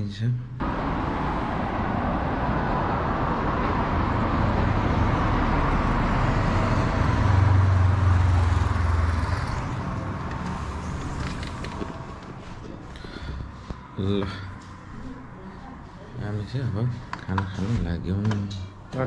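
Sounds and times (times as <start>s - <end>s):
motorcycle passing: 0.6s - 12.9s
cars passing: 0.6s - 19.0s
low vehicle engine hum: 0.6s - 19.0s.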